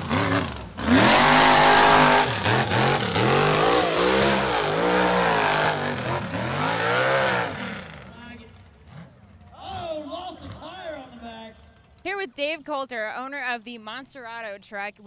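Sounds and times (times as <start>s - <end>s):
truck engine revving: 0.0s - 10.8s.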